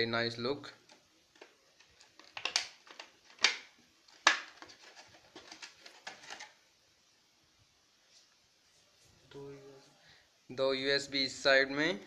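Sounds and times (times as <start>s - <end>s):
plastic packaging crinkling: 0.9s - 6.6s.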